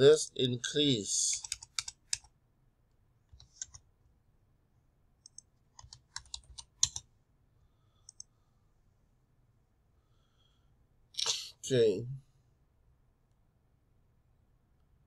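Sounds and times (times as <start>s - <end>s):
keyboard typing: 1.4s - 2.3s, 3.3s - 3.8s, 5.2s - 7.1s.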